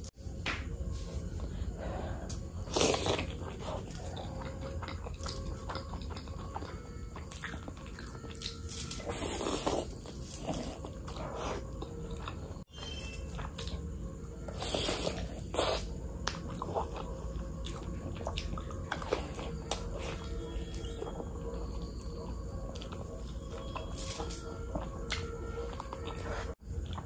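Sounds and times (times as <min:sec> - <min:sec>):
biting and chewing food: 0:00.0 - 0:27.0.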